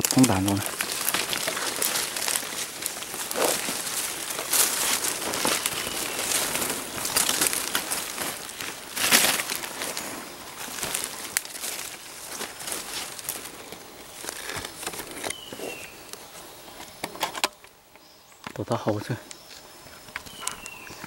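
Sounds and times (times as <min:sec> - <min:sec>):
footsteps crunching dry leaves: 0:00.0 - 0:16.6, 0:20.0 - 0:21.0
rustling undergrowth: 0:00.0 - 0:21.0.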